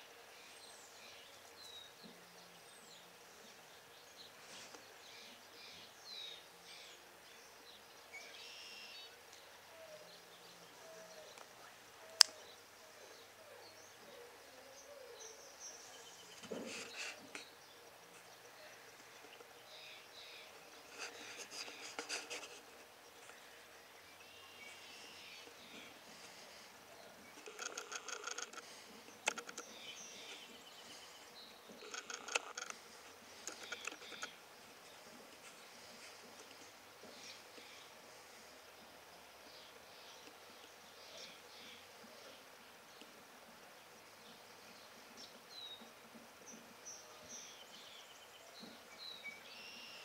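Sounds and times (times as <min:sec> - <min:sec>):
sharp click: 0:12.2 - 0:12.4
sharp clicks: 0:27.4 - 0:30.4, 0:31.8 - 0:32.8, 0:33.4 - 0:34.4
faint high bird chirps: 0:46.9 - 0:50.0.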